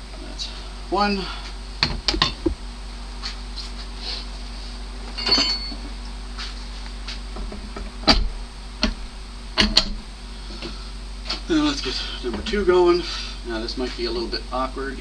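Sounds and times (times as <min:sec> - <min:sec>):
ringing metal clink: 0:05.2 - 0:05.8.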